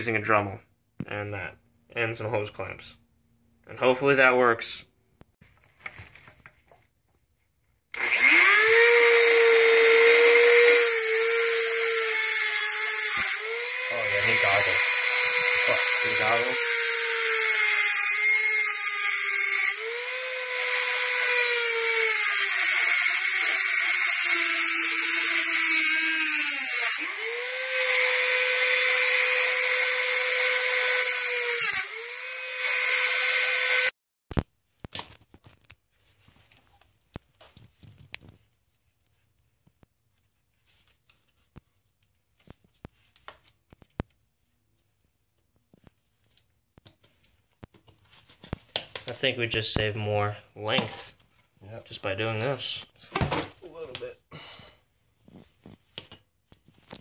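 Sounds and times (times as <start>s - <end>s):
rotary tool whining cutting metal: 8.0s - 33.9s.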